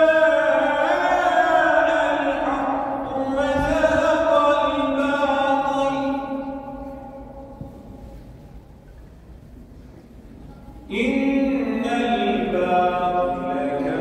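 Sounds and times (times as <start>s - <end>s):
man chanting recitation: 0.0s - 7.3s, 10.8s - 14.0s.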